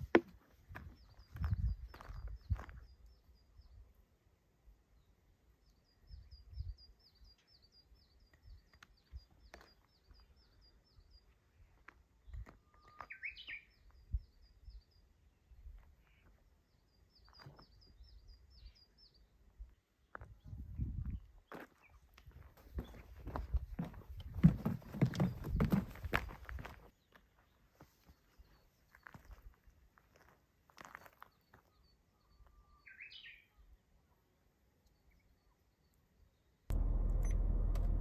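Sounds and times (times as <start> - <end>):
small songbirds chirping: 0.5 - 4.1, 4.9 - 22.1, 25.0 - 29.6, 30.8 - 38.0
low thumps and rumbles: 36.7 - 38.0.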